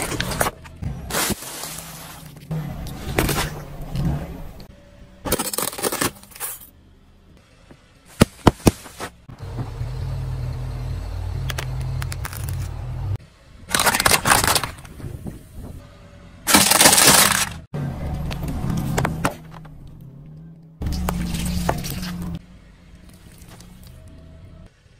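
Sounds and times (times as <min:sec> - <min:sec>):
car tyre crushing objects: 0:05.2 - 0:06.7, 0:08.1 - 0:09.8, 0:11.4 - 0:12.8, 0:13.7 - 0:15.4, 0:16.4 - 0:22.4
soda cans being flattened: 0:13.7 - 0:14.9, 0:16.5 - 0:17.5.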